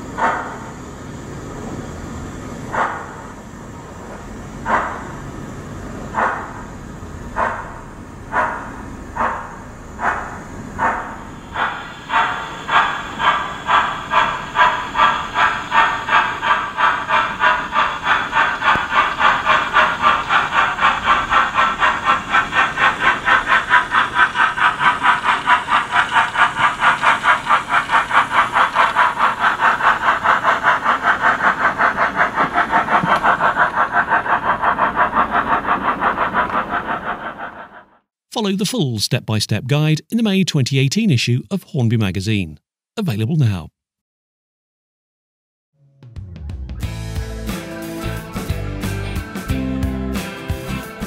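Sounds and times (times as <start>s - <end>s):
model steam locomotive chuffs: 0.0s - 38.8s, 46.9s - 51.0s.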